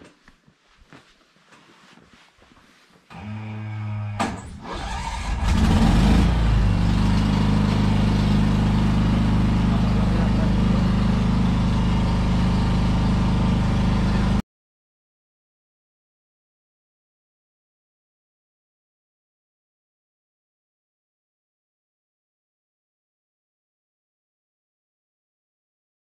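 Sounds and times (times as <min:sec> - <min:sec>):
engine running: 0:03.1 - 0:14.4.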